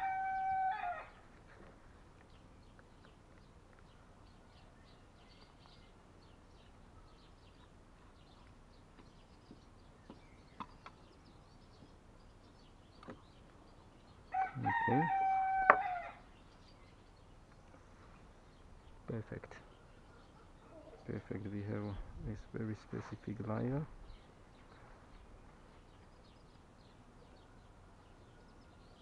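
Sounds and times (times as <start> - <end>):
rooster crowing: 0.0 - 1.2, 14.3 - 16.3.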